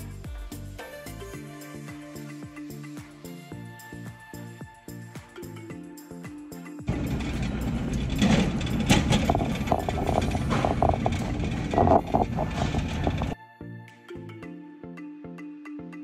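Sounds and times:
rumbling and rattling movement: 0:06.9 - 0:13.4.

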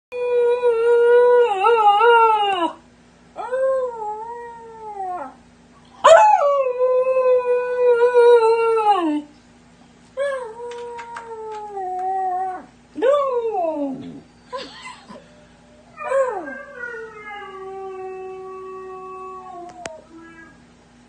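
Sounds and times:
puppy howling: 0:15.9 - 0:20.2.

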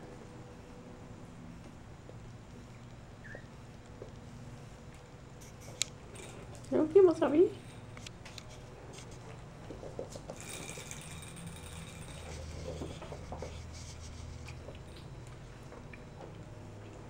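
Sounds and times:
low steady hum: 0:00.0 - 0:17.0
kittens' paws scampering on floor: 0:07.5 - 0:17.0.

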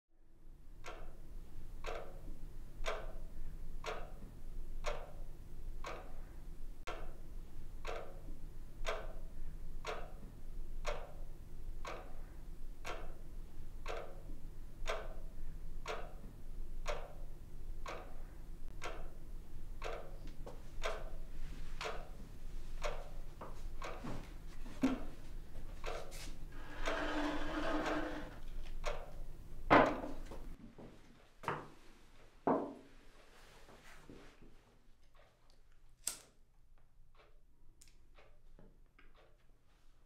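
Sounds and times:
clock ticking: 0:00.8 - 0:30.4, 0:37.1 - 0:37.5, 0:38.1 - 0:38.5.

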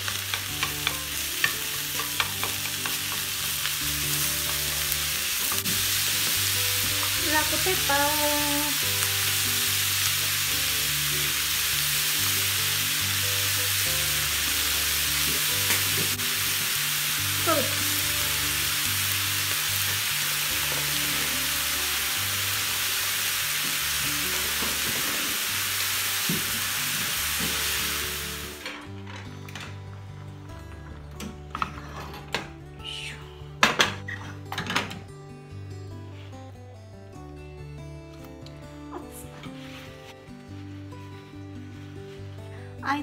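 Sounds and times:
meat sizzling in a frying pan: 0:00.0 - 0:28.6.

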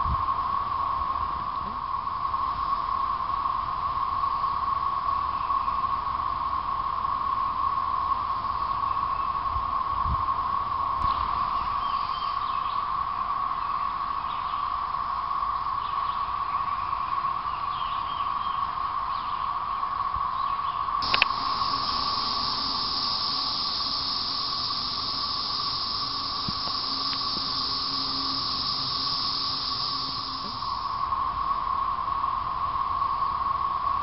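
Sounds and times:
high hiss: 0:00.0 - 0:17.5, 0:18.4 - 0:34.0
cicadas droning: 0:00.0 - 0:34.0
click: 0:21.0 - 0:21.4, 0:26.2 - 0:27.7.

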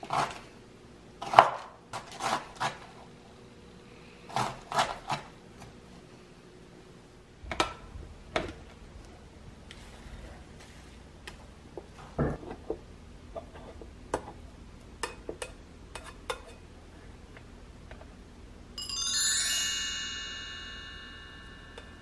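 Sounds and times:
bright many-toned chime: 0:18.8 - 0:22.0.

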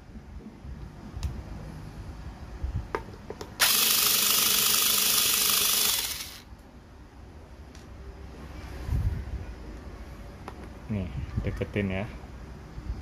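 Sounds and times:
cordless screwdriver whirring: 0:03.6 - 0:06.4.

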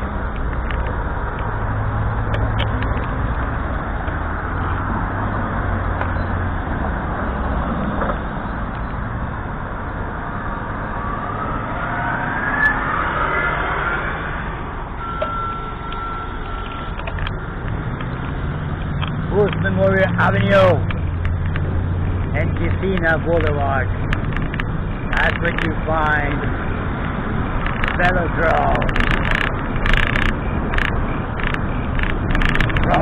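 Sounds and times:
engine whine: 0:00.0 - 0:33.0
vehicles driving past: 0:00.0 - 0:33.0
high-pitched tone: 0:11.0 - 0:17.2.

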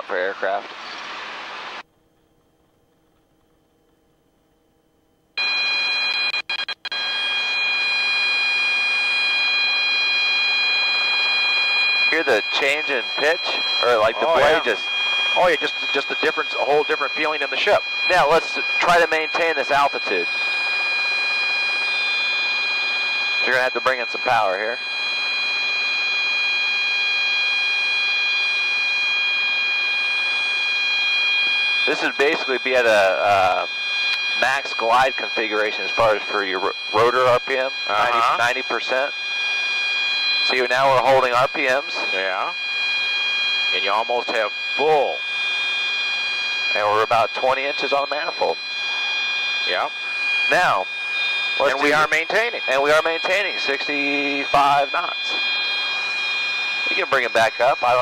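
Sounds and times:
helicopter warning horn: 0:12.0 - 0:20.6, 0:31.8 - 0:39.0, 0:46.6 - 0:58.0.

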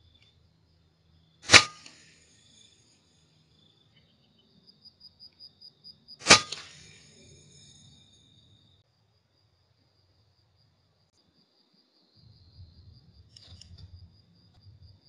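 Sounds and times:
suppressed air rifle shots: 0:01.4 - 0:02.2, 0:06.2 - 0:07.3.

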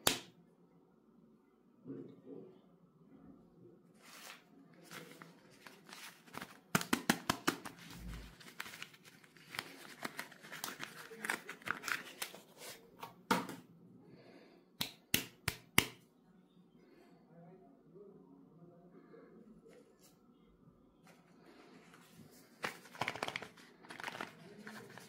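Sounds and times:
sharp cardboard snaps: 0:00.0 - 0:00.3.

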